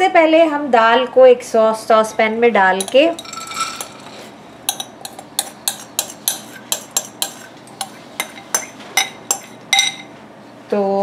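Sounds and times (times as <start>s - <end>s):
lentils clinking into metal pan: 2.8s - 7.4s.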